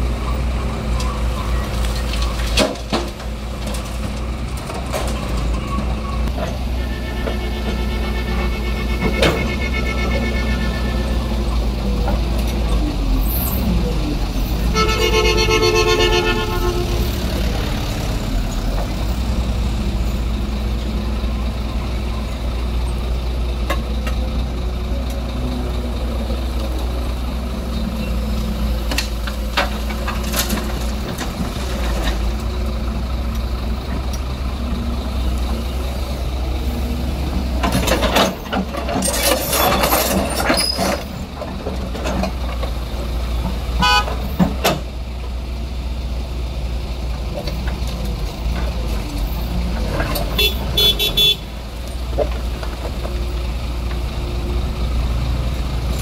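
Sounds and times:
excavator diesel engine running: 0.0s - 56.0s
horn-like tone: 6.8s - 11.4s, 14.7s - 17.1s.

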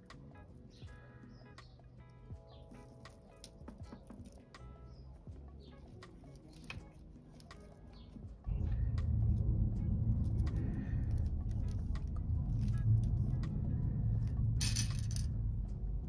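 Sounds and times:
plastic beads clicking: 6.3s - 7.8s, 14.6s - 15.3s
low motor rumble: 8.4s - 16.0s.

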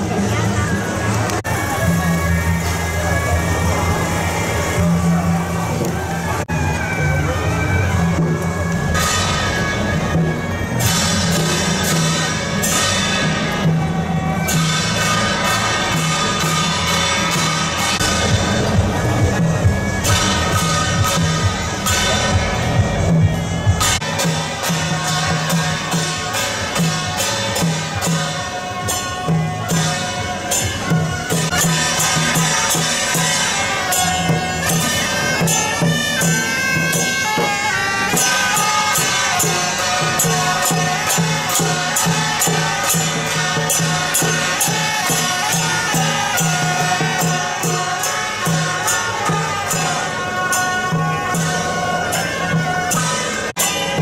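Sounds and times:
suona horns playing melody: 0.1s - 54.0s
cymbal clashes: 8.2s - 54.0s
gong strikes: 10.8s - 28.3s.

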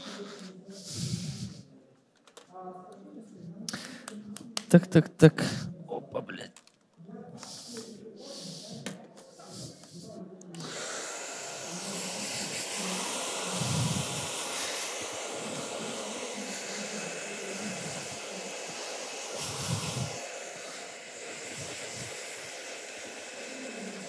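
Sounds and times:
hair dryer blowing: 9.4s - 24.0s.

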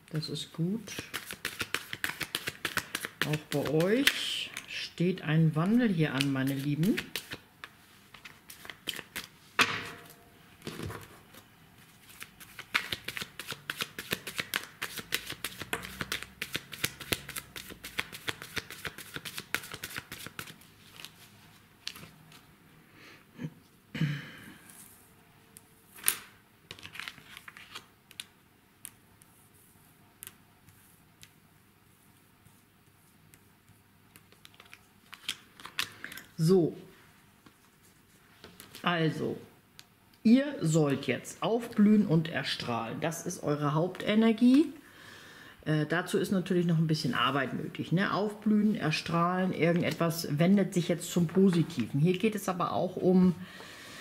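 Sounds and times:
cards being shuffled: 0.9s - 4.6s, 6.1s - 9.4s, 10.7s - 22.5s, 26.0s - 28.3s, 34.1s - 36.2s.

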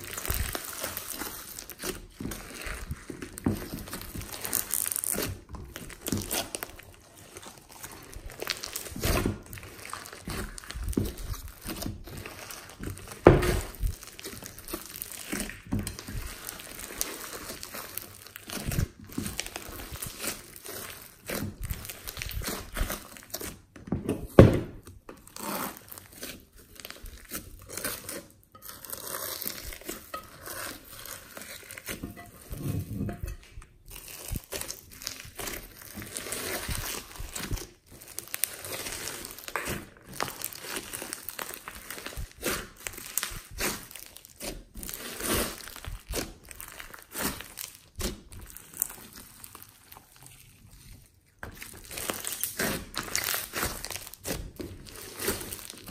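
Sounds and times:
slime clicking and squelching: 0.0s - 23.8s, 24.9s - 32.4s, 33.4s - 55.9s.

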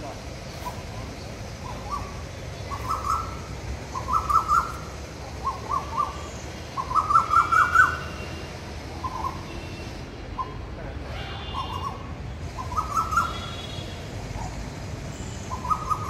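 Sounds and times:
faint chirps of other birds: 0.0s - 16.0s
bird calling in rapid notes: 0.6s - 8.1s, 15.5s - 16.0s.

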